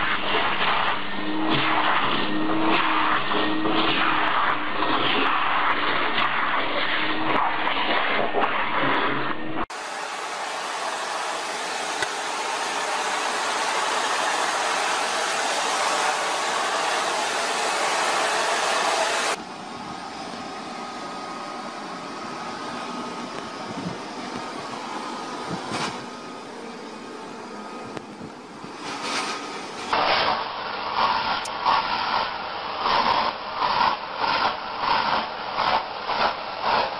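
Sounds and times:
handheld vacuum motor whine: 0.0 - 28.6
vacuum cleaner suction hiss: 0.0 - 36.9.

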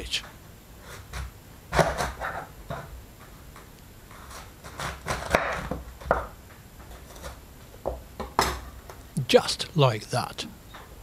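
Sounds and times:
knife cutting cabbage: 4.1 - 5.7.

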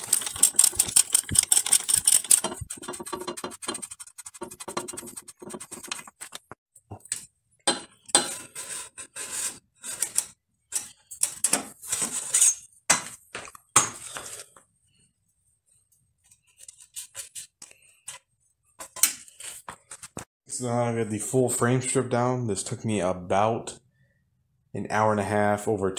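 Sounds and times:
metal bicycle parts clinking: 0.0 - 3.4.

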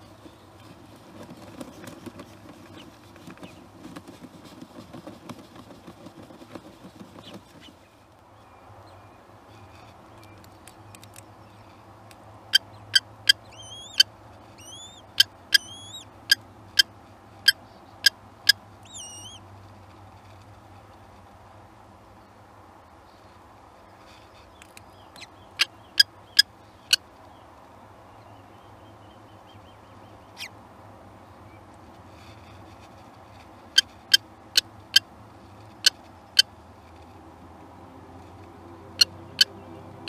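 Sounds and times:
bird rustling in nest litter: 0.0 - 8.0
kestrel calling: 12.5 - 16.9, 18.8 - 19.4.

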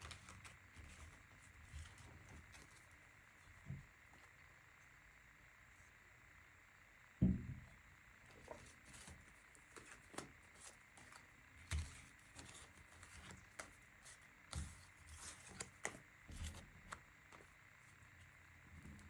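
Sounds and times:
cards shuffling: 8.4 - 17.5.

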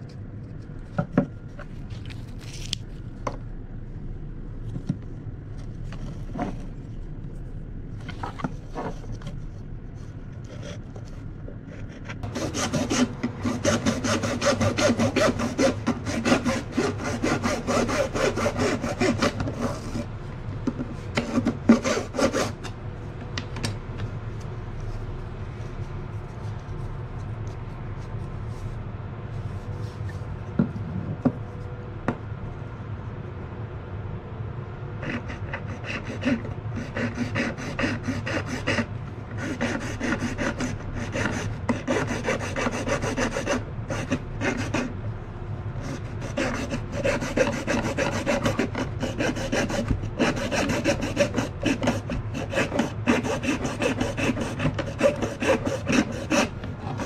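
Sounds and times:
hacksaw sawing plastic pipe: 12.2 - 20.1, 21.1 - 22.7, 35.0 - 45.0, 45.8 - 57.0.

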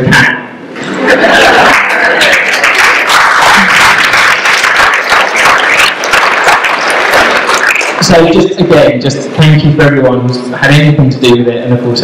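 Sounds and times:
audience applause: 1.0 - 8.4.

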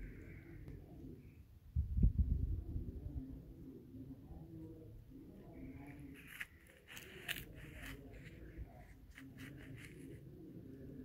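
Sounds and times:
rustling and clicking scrapes: 5.8 - 10.3.

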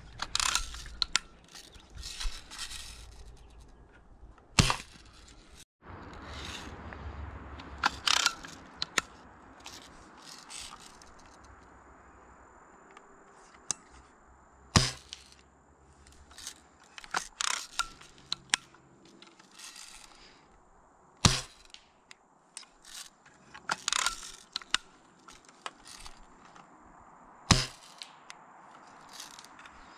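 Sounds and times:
lever clicking and clattering: 0.0 - 3.7, 7.8 - 11.1, 22.6 - 26.2.

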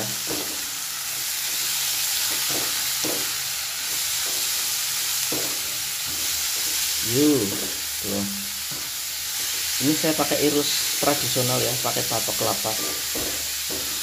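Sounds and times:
vegetables sizzling in hot oil: 0.0 - 14.0
spatula scraping a wok: 12.4 - 14.0.

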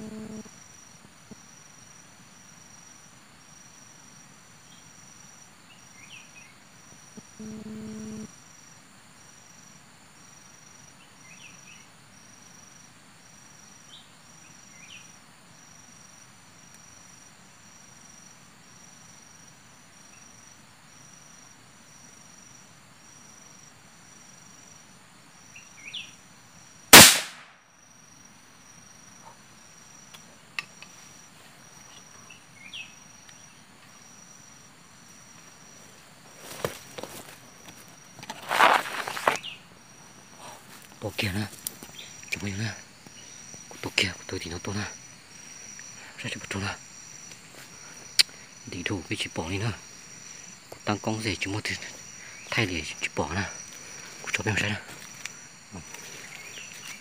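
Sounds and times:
insects buzzing: 0.0 - 57.0
rifle gunshot: 26.9 - 27.6
rustling of leaves: 34.9 - 43.9, 53.6 - 57.0
faint chirps: 40.4 - 57.0.

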